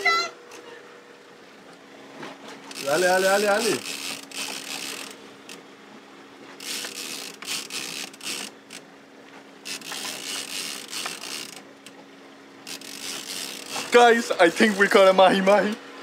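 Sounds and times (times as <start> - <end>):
steady low hum: 0.0 - 16.0
fishing reel ratcheting clicks: 2.7 - 5.6, 6.6 - 8.8, 9.6 - 11.7, 12.6 - 14.8.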